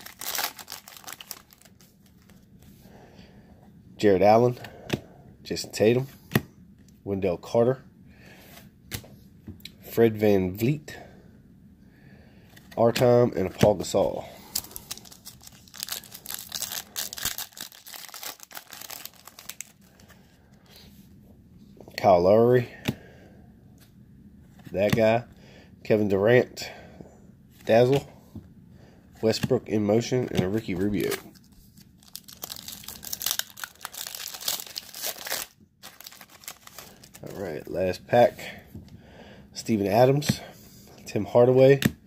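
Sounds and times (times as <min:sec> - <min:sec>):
foil wrapper crinkling and tearing: 0:00.0 - 0:02.4, 0:14.4 - 0:20.0, 0:31.0 - 0:37.4.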